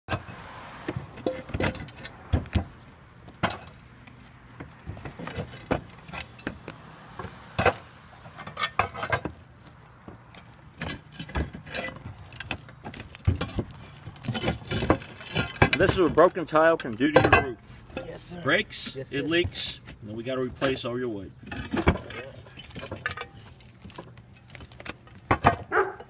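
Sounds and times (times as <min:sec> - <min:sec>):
roof tiles clinking and knocking: 0:00.1 - 0:03.9, 0:04.5 - 0:09.4, 0:10.0 - 0:19.8, 0:21.4 - 0:26.0.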